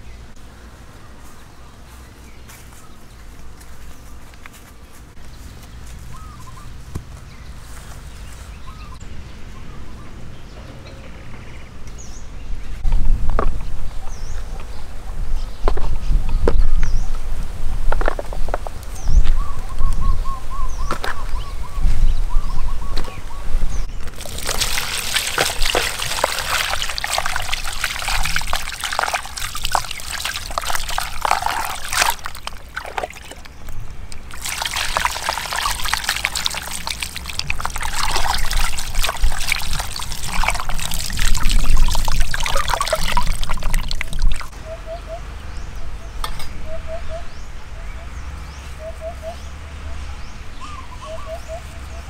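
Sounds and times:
water splashing into plastic basin: 24.0s - 44.5s.

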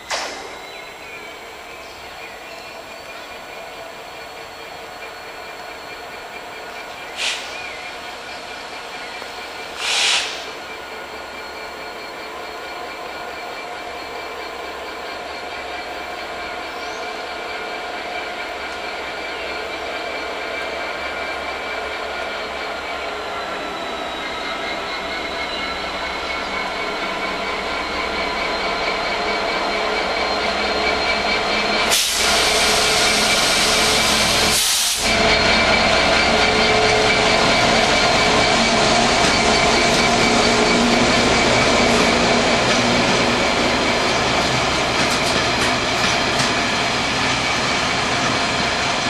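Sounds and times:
diesel locomotive engine running: 0.0s - 49.0s
loud hissing rush: 9.7s - 10.6s, 31.8s - 35.7s.

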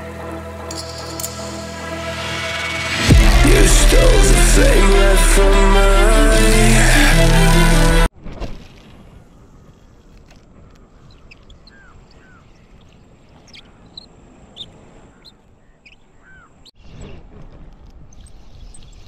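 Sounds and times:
birds chirping: 11.0s - 16.7s.

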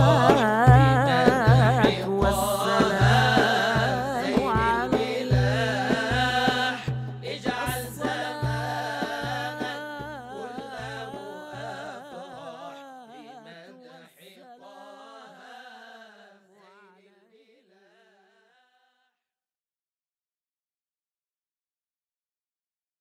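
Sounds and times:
drum beat: 0.0s - 11.8s
devotional singing: 0.0s - 18.0s.

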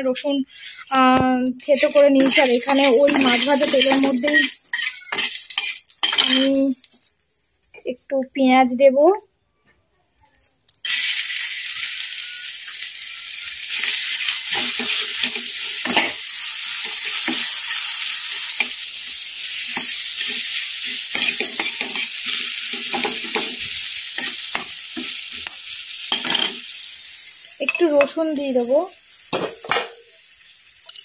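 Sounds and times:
onions sizzling in hot oil: 0.4s - 7.3s, 10.8s - 31.0s
metal spatula scraping a pan: 1.8s - 6.6s, 13.7s - 18.9s.

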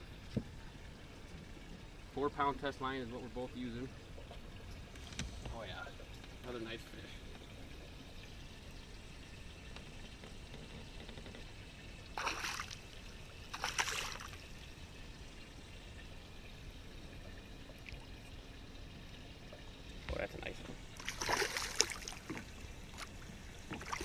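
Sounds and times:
fish splashing at water surface: 12.2s - 14.6s, 21.0s - 24.0s.

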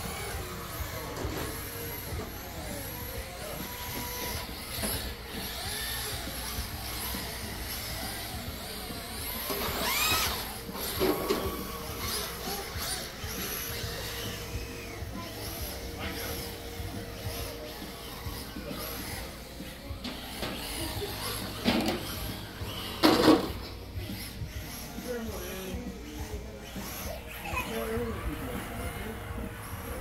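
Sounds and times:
rc car motors whining: 0.0s - 30.0s.

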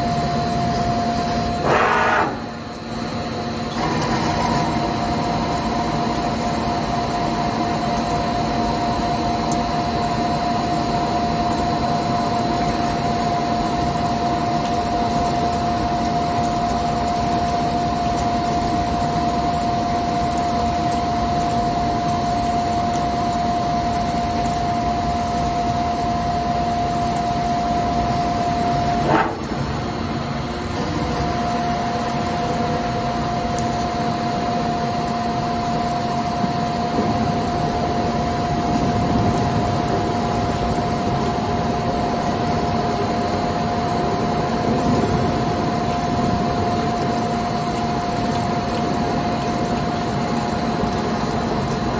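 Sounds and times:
coolant spraying hiss: 1.5s - 2.8s
lathe machine whine: 1.6s - 2.6s, 3.6s - 5.1s.

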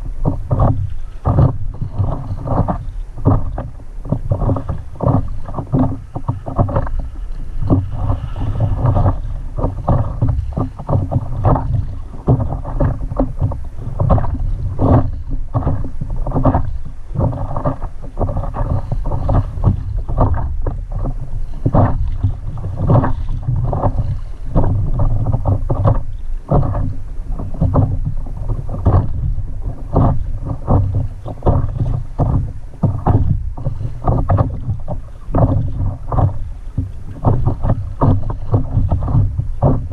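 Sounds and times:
water splashing against paddleboard: 0.0s - 39.9s
wind rumble on microphone: 0.0s - 39.9s.

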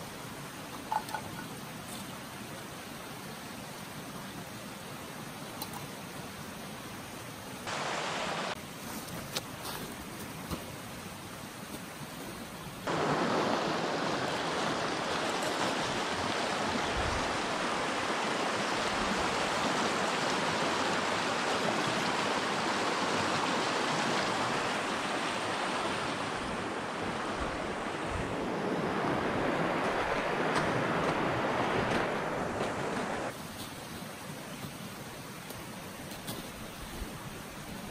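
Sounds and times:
stream rushing over stones: 0.0s - 37.9s.

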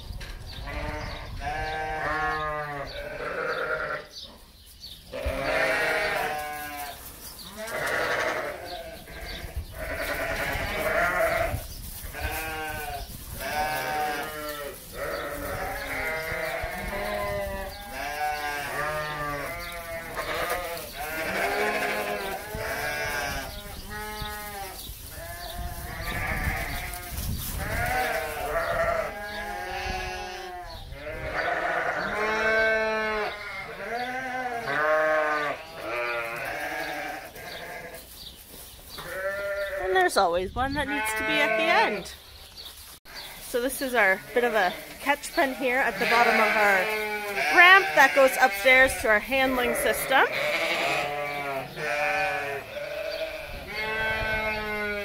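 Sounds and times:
sheep bleating: 0.7s - 4.1s, 5.1s - 38.0s, 39.0s - 40.0s, 40.9s - 42.2s, 43.1s - 55.0s.

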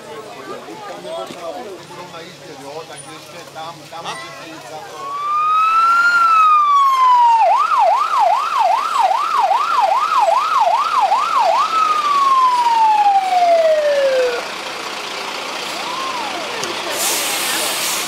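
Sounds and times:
electronic siren wailing and yelping: 5.0s - 14.4s.

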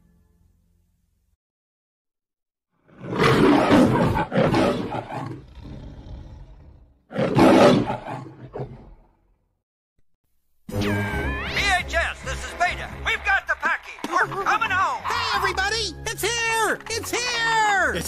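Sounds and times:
lion grunting: 2.8s - 9.4s
lion roaring: 2.8s - 9.4s.

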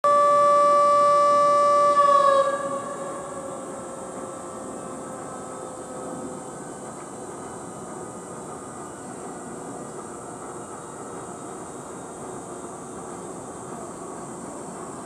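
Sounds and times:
loud horn blast: 0.0s - 3.9s.

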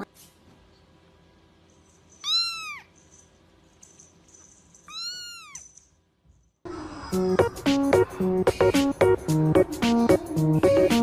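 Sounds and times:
kitten mewing: 4.9s - 5.6s.

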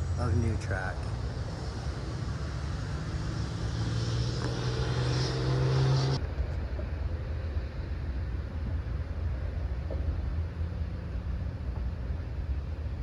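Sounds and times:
engine hum: 0.0s - 13.0s
low steady rumble: 0.0s - 13.0s.

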